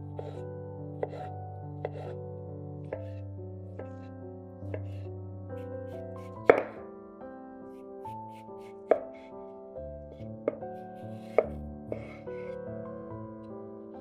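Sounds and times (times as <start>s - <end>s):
knife chopping on wooden board: 1.0s - 2.1s, 6.2s - 6.8s, 10.5s - 12.2s.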